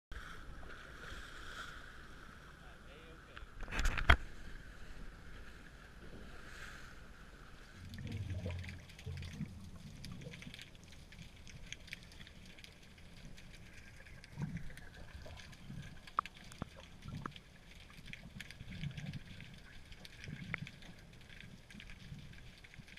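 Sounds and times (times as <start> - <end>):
water sloshing and gurgling: 0.1 - 22.9
small clicks and knocks: 3.6 - 4.2
faint bubbling: 5.9 - 22.9
muffled underwater sound: 7.8 - 10.6.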